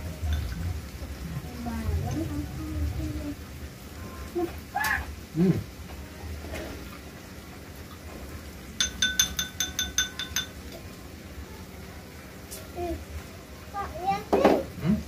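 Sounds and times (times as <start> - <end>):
utensil tapping on a dish: 8.8 - 10.6.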